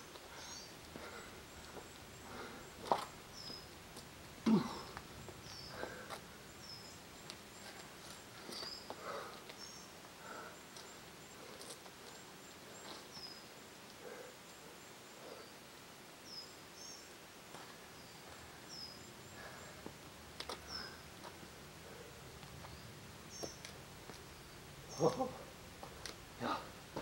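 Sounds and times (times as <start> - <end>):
person breathing effortfully: 0.2 - 3.0, 5.6 - 6.4, 8.4 - 11.8, 19.2 - 20.0
small bird chirping: 0.3 - 1.7, 2.9 - 3.7, 5.2 - 10.0, 12.0 - 13.5
person grunting: 4.4 - 4.9.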